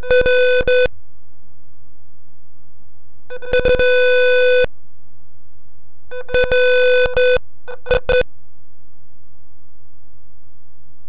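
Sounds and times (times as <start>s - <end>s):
harsh electronic alarm buzzer: 0.0s - 0.9s, 3.4s - 4.7s
steady low hum: 0.0s - 11.0s.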